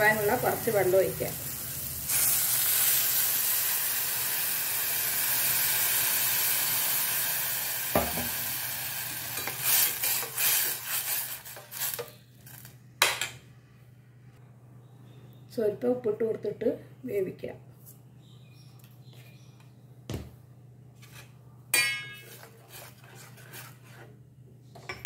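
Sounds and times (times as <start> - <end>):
water sizzling in hot pot: 0.0 - 12.1
spoon scraping a pot: 21.0 - 24.2.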